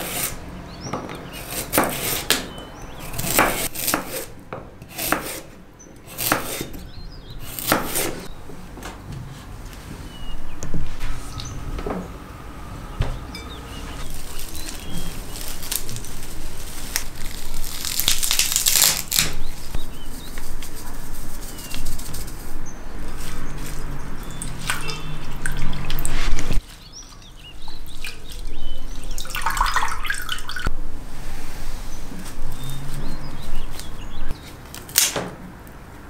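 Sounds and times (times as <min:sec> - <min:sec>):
water splashing and dripping: 0:23.6 - 0:30.7.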